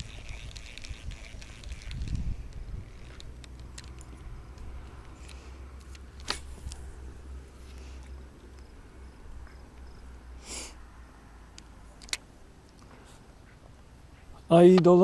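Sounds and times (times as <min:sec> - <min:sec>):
wind rumble on microphone: 0:00.0 - 0:03.4
fishing reel click: 0:00.0 - 0:06.8.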